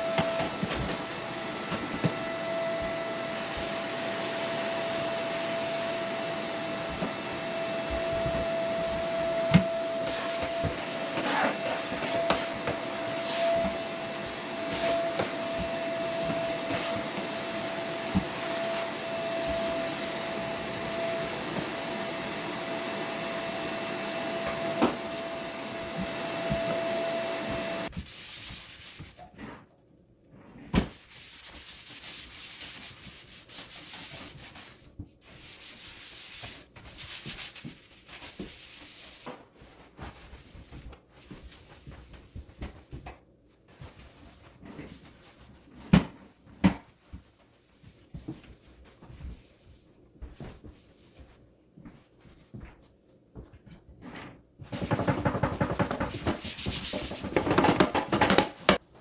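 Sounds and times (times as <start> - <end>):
vacuum cleaner whine: 0.0 - 27.9, 57.0 - 58.8.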